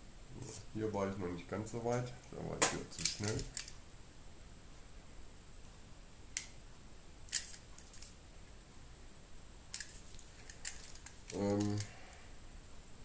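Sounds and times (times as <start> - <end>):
sharp clicks of cable parts: 2.6 - 3.8, 7.3 - 8.1, 9.7 - 12.0.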